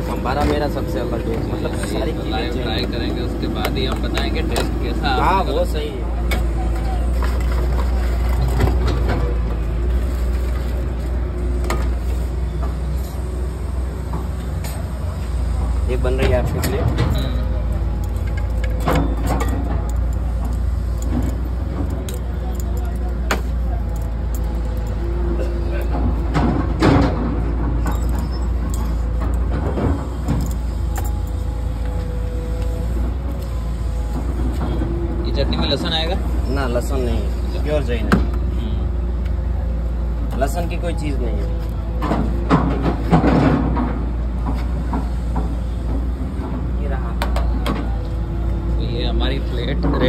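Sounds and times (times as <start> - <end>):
traffic rumble: 0.0 - 50.0.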